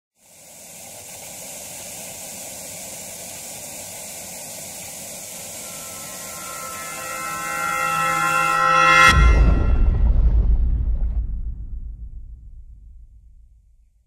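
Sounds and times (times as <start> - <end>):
static hiss: 0.1 - 9.1
faint musical tones: 5.3 - 9.7.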